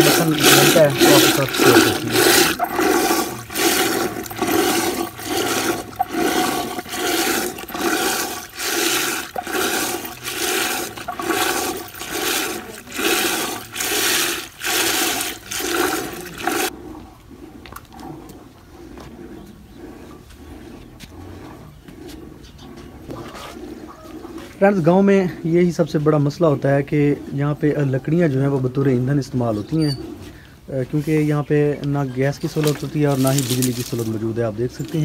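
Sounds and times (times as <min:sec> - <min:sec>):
churning stick swishing yogurt: 0:00.0 - 0:25.0, 0:32.4 - 0:35.0
faint outdoor background: 0:00.0 - 0:35.0.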